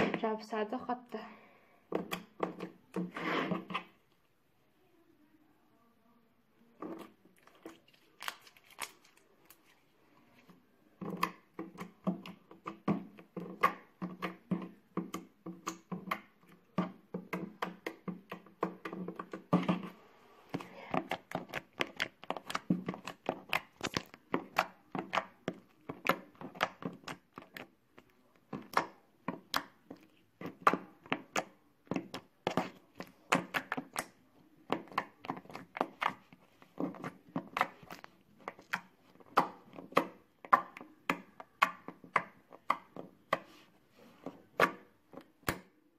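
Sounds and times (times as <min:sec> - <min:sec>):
slime clicking and popping: 0:07.4 - 0:09.6, 0:21.0 - 0:36.3.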